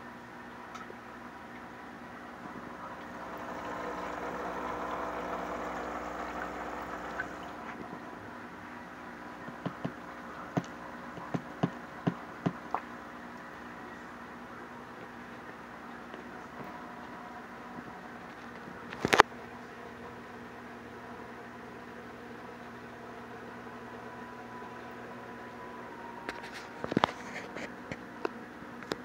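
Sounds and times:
aquarium air pump humming: 0.0s - 29.0s
water bubbling: 2.4s - 13.4s.

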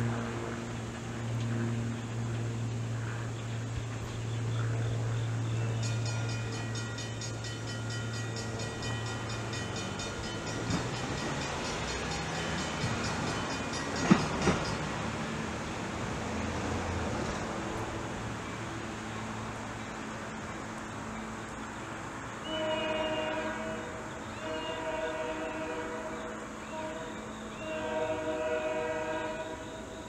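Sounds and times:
distant locomotive horn blast: 0.0s - 1.8s, 22.3s - 30.0s
low drone: 0.0s - 22.5s.

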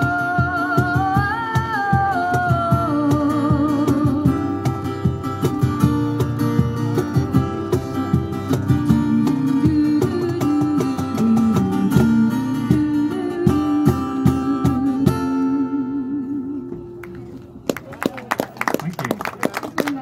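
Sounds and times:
woman singing: 0.0s - 4.7s, 8.7s - 16.9s
acoustic guitar strumming: 0.0s - 17.6s.

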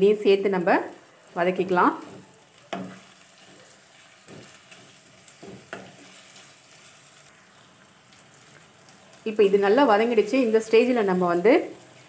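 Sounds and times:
vegetables sizzling in oil: 0.0s - 12.0s
wooden spatula scraping: 1.5s - 7.3s.

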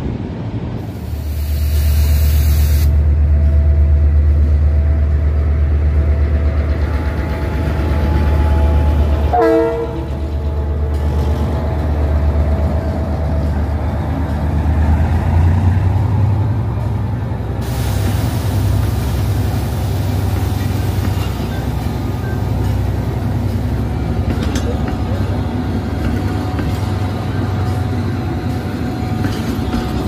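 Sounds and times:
diesel locomotive engine throbbing: 0.0s - 30.0s
short train horn toot: 9.3s - 10.1s.

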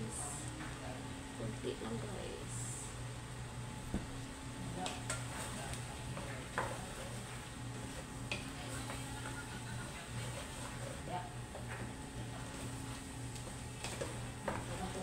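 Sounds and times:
soft sizzle: 0.0s - 15.0s
steady low hum: 0.0s - 15.0s
spoon stirring in pot: 4.8s - 15.0s.

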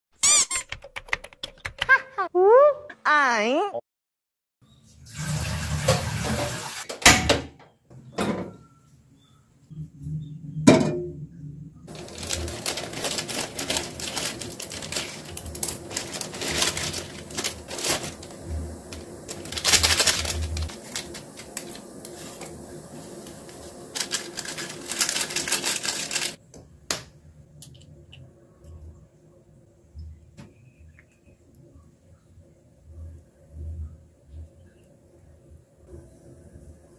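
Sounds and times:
plastic packet crinkling: 11.9s - 26.4s.

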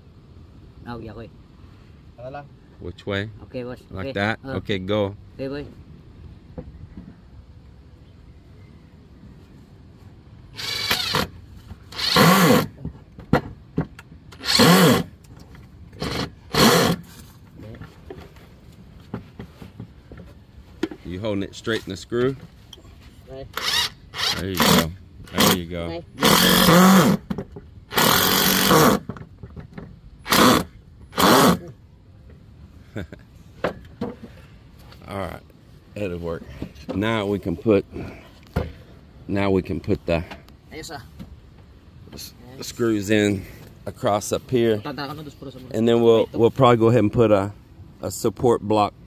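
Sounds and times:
power drill driving screws: 10.6s - 11.3s, 11.9s - 12.7s, 14.3s - 15.1s, 16.0s - 17.1s, 23.5s - 25.6s, 26.2s - 27.2s, 27.9s - 29.1s, 30.2s - 31.6s.

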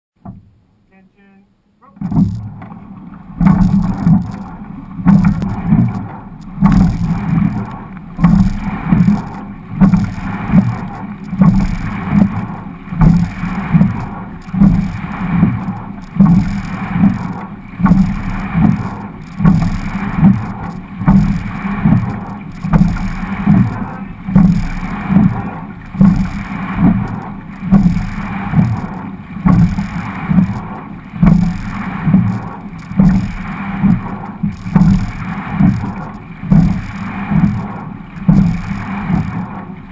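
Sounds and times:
oar stroke knock and surge: 0.2s - 0.7s, 1.9s - 39.9s
water rushing along hull: 0.2s - 1.0s, 1.8s - 39.9s.

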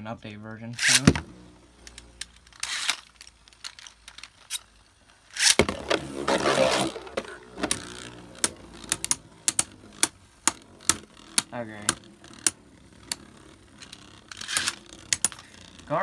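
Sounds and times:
spinning tops clicking together: 1.7s - 16.0s
spinning top launched and skidding: 5.3s - 16.0s.

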